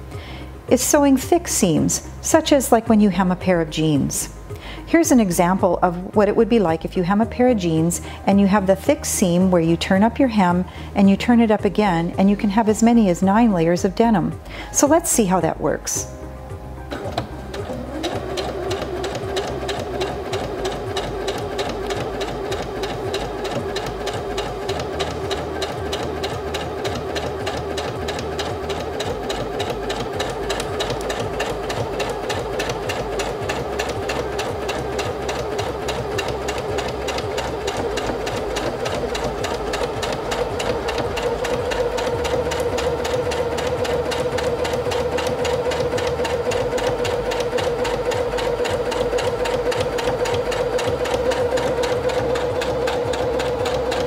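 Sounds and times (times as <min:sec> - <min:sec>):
sewing machine stitching: 0:16.9 - 0:54.0.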